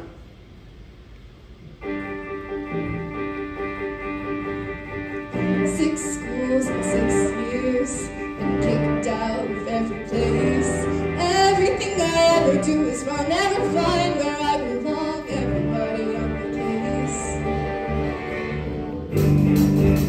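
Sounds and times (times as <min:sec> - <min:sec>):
live rock band: 0:01.8 - 0:20.0
person singing: 0:05.3 - 0:17.9.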